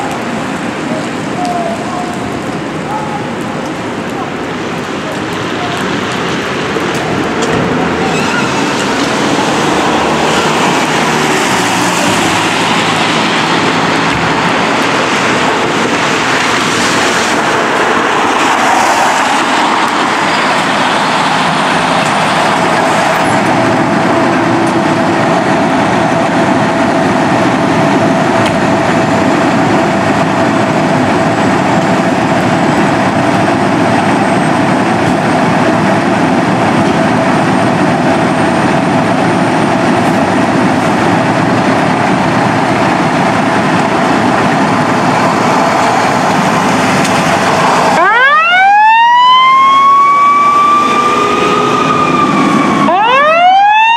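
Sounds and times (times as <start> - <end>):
diesel engines idling: 19.4 - 49.0.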